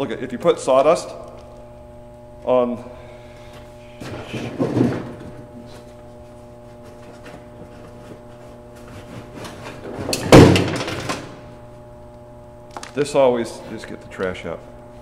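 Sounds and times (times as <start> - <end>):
electrical hum: 0.0 - 15.0
metal can clattering thump: 10.0 - 11.3.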